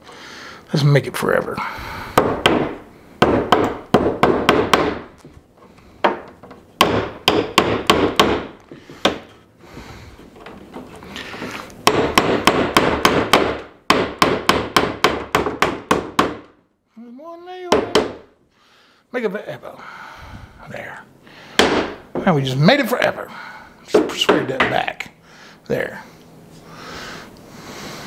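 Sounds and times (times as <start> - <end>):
hammer hitting nail into wood: 2.2 - 5.1, 6.0 - 9.3, 11.8 - 16.6, 17.7 - 18.2, 21.6 - 22.3.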